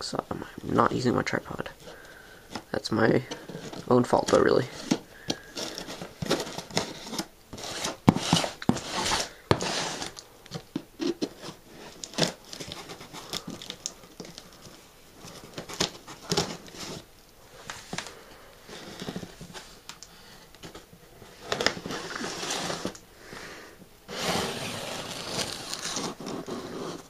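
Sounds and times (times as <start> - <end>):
knife cutting packing tape: 4.8 - 10.2, 11.0 - 13.9, 24.1 - 27.0.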